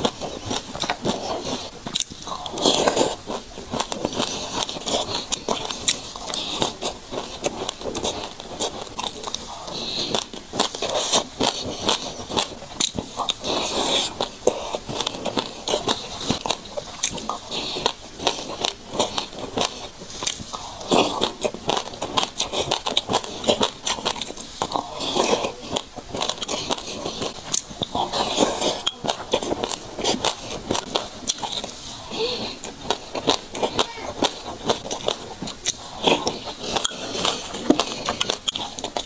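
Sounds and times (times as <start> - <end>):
sesame seeds crunching in mouth: 0.0 - 39.0.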